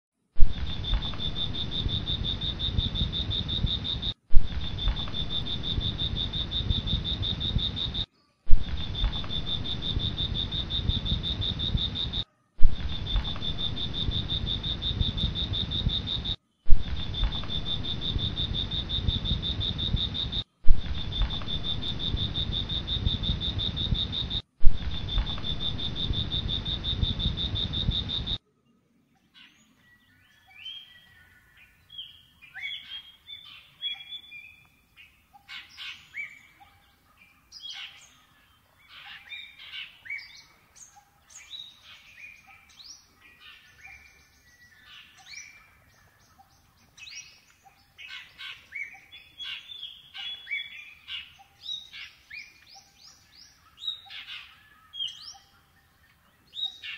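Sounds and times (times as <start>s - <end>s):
low rumbling noise: 0.4s - 28.4s
faint chirp: 0.4s - 56.9s
high-pitched insect trill: 0.6s - 12.2s, 12.8s - 28.4s.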